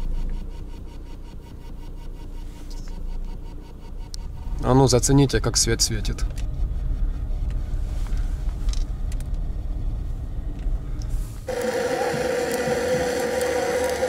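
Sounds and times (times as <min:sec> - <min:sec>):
car engine rumble in cabin: 0:00.0 - 0:14.0
gas torch hissing: 0:11.3 - 0:14.0.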